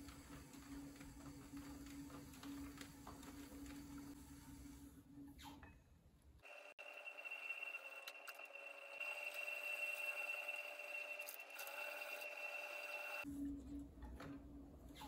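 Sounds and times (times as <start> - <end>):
potter's wheel whine: 6.4 - 13.8.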